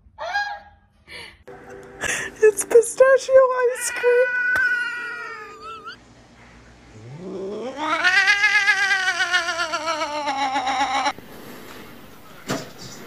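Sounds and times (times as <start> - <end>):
cat meowing: 3.8 - 6.0, 7.2 - 11.2.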